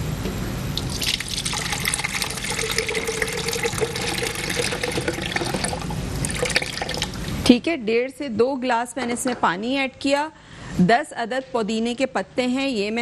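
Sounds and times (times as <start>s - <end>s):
water pouring into plastic jar: 0.8s - 7.3s.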